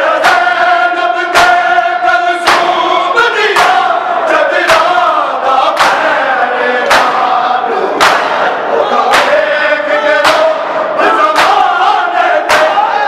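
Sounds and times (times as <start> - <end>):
crowd of men chanting: 0.0 - 13.0
chest beating slaps: 2.4 - 4.0, 5.7 - 6.2, 6.8 - 7.4, 8.0 - 9.4, 10.2 - 11.8, 12.4 - 12.9.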